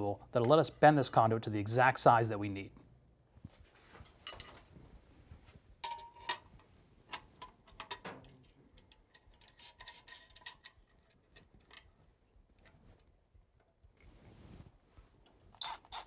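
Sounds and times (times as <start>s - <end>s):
metal conduit clicking and clinking: 5.8s - 12.0s.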